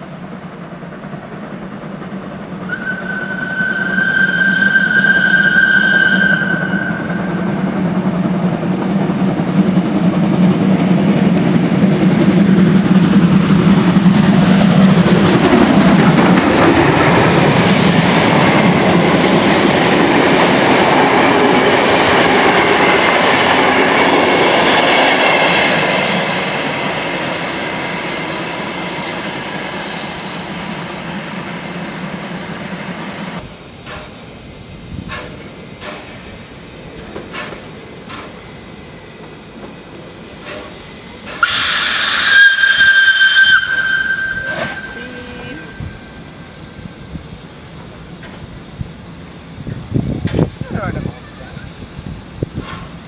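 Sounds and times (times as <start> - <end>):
train wheels clattering on rails: 0.0 - 44.9, 45.7 - 49.0, 49.7 - 53.0
low rumble of locomotive: 0.0 - 53.0
faint high wheel squeal: 2.7 - 7.5, 33.4 - 41.6, 42.5 - 46.9
steam locomotive whistle: 2.7 - 7.5, 40.4 - 46.7.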